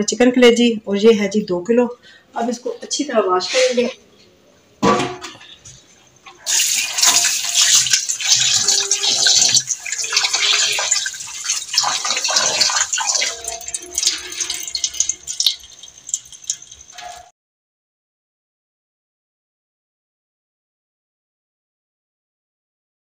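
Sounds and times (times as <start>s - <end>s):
tap water running into a steel bowl: 6.3s - 17.3s.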